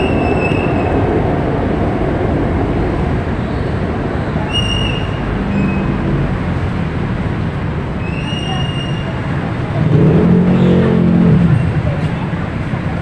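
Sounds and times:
city traffic rumble: 0.0s - 13.0s
deep vehicle drone: 0.0s - 13.0s
short high squeal: 4.5s - 6.0s, 8.0s - 9.2s.

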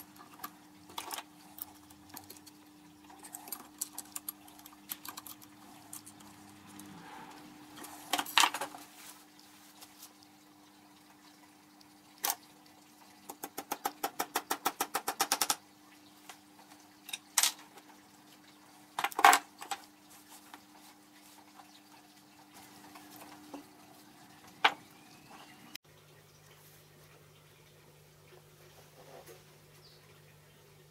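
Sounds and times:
faint steady hum: 0.0s - 30.9s
metal clicks and knocks from tools: 3.2s - 6.9s.

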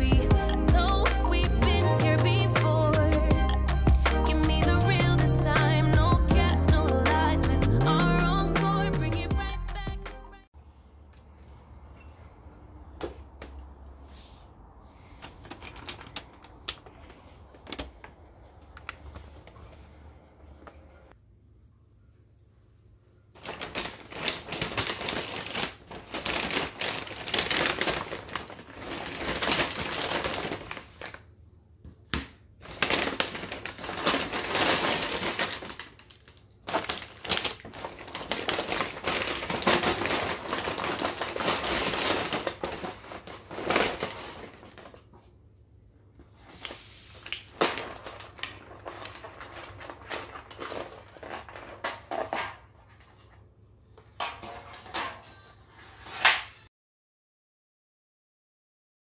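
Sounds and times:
paper bag rustling: 15.0s - 21.1s, 23.4s - 31.3s, 32.6s - 45.3s, 46.2s - 53.4s.

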